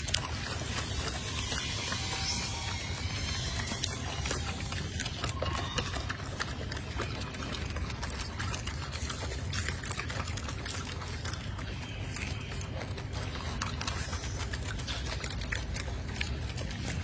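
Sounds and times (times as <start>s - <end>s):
monkeys chewing food: 0.0s - 17.0s
steady low hum: 0.0s - 17.0s.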